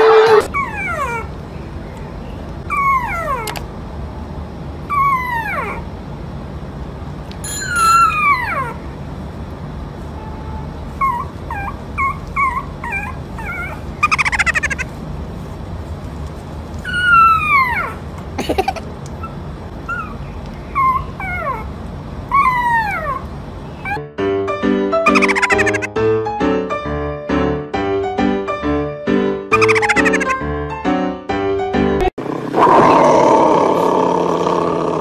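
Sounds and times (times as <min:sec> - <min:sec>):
puppy whimpering: 0:00.4 - 0:01.3, 0:02.7 - 0:03.6, 0:04.9 - 0:05.8, 0:07.8 - 0:08.8, 0:11.0 - 0:14.9, 0:16.8 - 0:21.7, 0:22.3 - 0:24.0, 0:25.1 - 0:25.9, 0:29.5 - 0:30.4.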